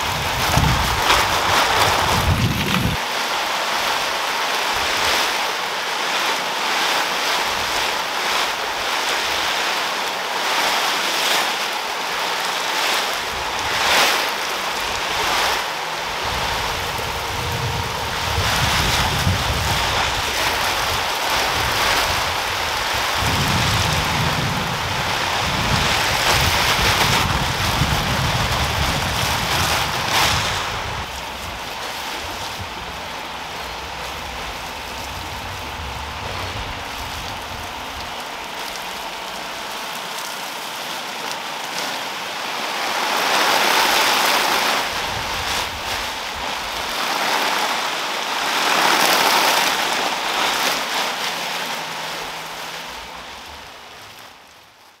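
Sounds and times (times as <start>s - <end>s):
steady rain: 0.0s - 55.0s
low rumble of thunder: 16.1s - 38.2s.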